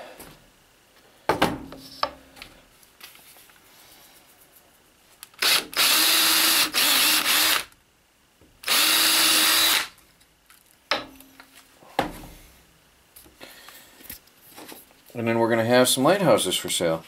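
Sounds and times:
cordless drill driving screws: 5.4s - 7.8s, 8.6s - 9.9s.

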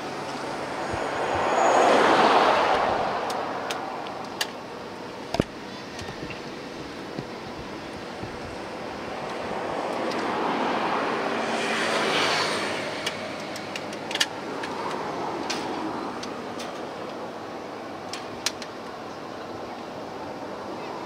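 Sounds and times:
vehicle passing: 0.0s - 4.0s
traffic hum: 0.0s - 21.0s.

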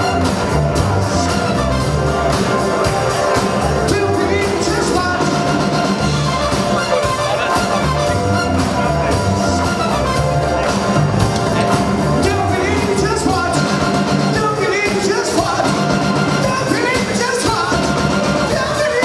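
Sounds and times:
electric bass: 0.0s - 18.7s
drum kit: 0.0s - 19.0s
person singing: 3.4s - 9.8s, 11.6s - 19.0s.

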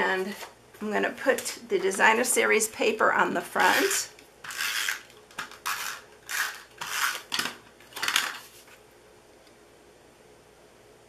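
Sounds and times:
tape runner drawn across paper: 3.6s - 7.3s.

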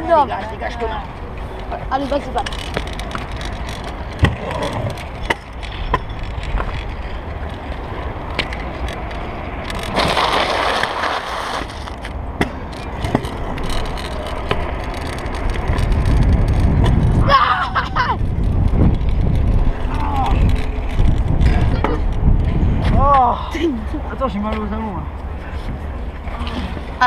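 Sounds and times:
scooter wheels rolling on asphalt: 0.0s - 27.0s
rough rushing noise: 2.7s - 23.0s.

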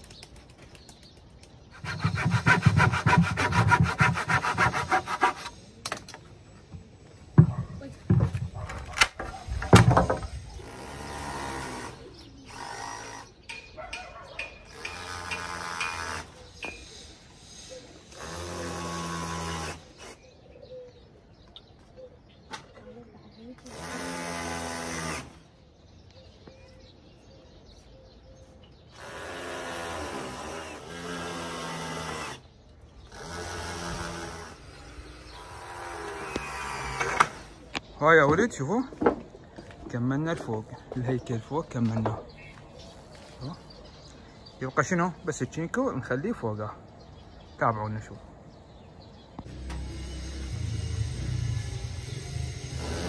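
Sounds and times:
wooden planks knocking: 7.4s - 8.6s, 9.6s - 10.3s
cordless drill running: 23.6s - 25.4s
cordless drill driving into wood: 23.6s - 25.5s, 29.0s - 32.5s, 35.4s - 37.6s.

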